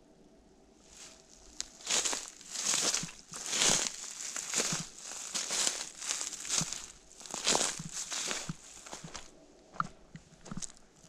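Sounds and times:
footsteps through dry leaves: 0.9 - 9.3.

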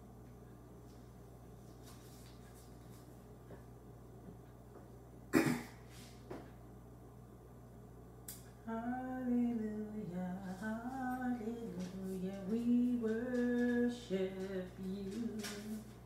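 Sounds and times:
faint steady hum: 0.0 - 16.0
woman singing unaccompanied: 8.6 - 16.0.

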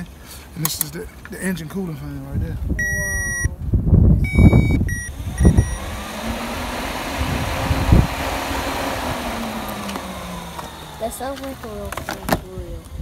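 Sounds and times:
cooling fan running: 4.2 - 13.0.

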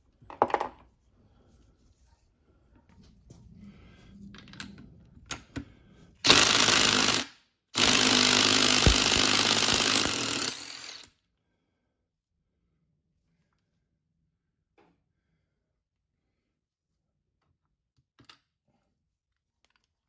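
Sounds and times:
impact wrench hammering: 6.2 - 11.1.

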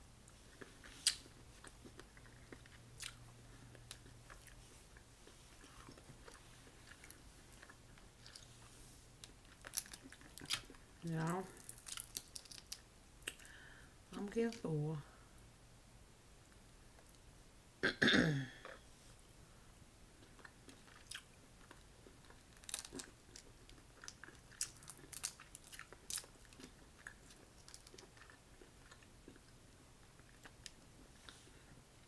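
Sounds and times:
crawfish shells cracking: 9.2 - 13.6, 20.8 - 29.4.

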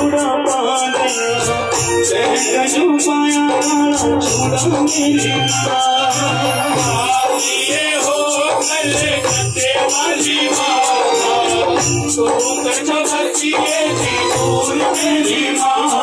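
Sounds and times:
live band melody: 0.0 - 7.1
rattling shaker percussion: 0.0 - 16.0.

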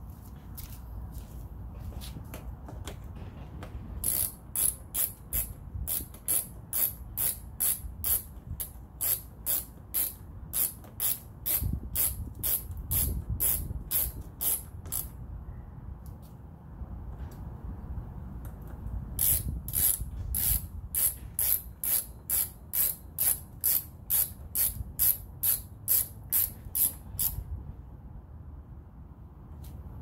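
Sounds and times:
hand ratchet clicking: 4.0 - 15.2, 19.2 - 27.4.

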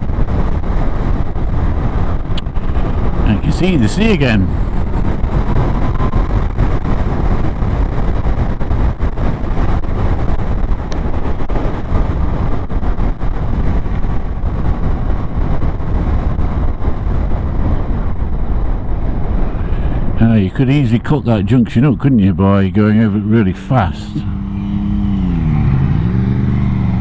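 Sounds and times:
wind rush on microphone: 0.0 - 27.0
motorcycle engine running: 23.6 - 27.0.

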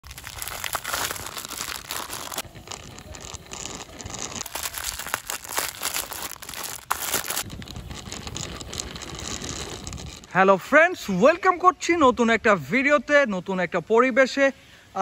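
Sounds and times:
plastic bags crinkling: 0.0 - 9.8.

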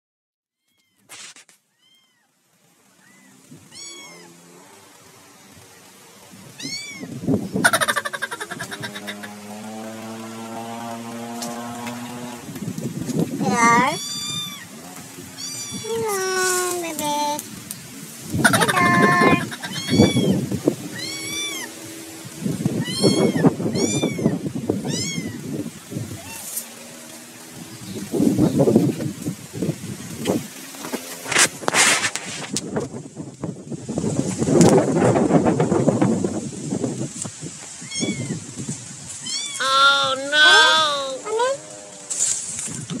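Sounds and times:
dry leaves rustling: 0.8 - 43.0
cat meowing: 3.0 - 4.4, 13.5 - 14.7, 15.4 - 16.7, 18.4 - 21.7, 22.8 - 25.4, 37.8 - 38.4, 39.2 - 41.6.

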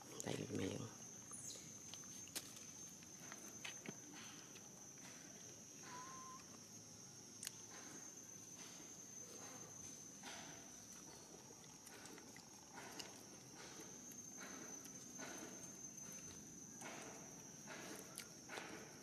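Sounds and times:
high-pitched whine: 5.7 - 7.0.

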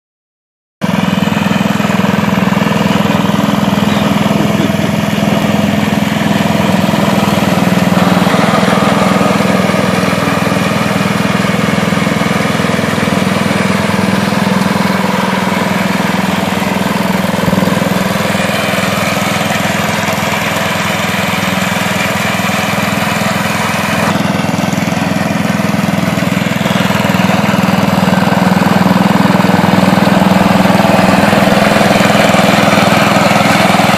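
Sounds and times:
riding lawn mower engine: 0.8 - 33.9.

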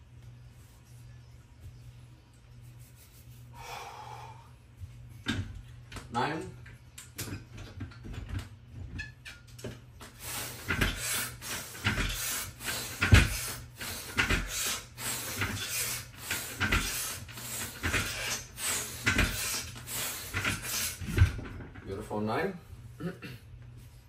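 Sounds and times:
person breathing hard: 3.5 - 4.6.

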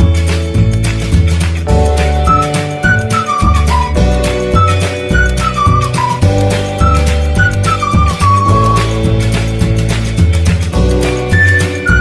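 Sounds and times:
steady bass notes: 0.0 - 12.0
sliding high melody: 1.7 - 9.0, 11.2 - 12.0.

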